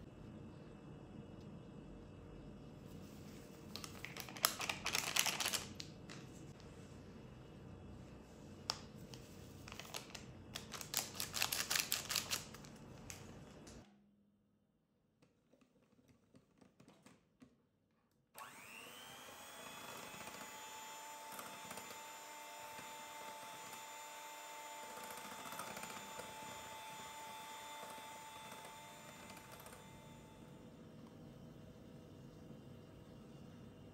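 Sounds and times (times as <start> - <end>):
electric hand mixer whine: 18.4 - 30.8.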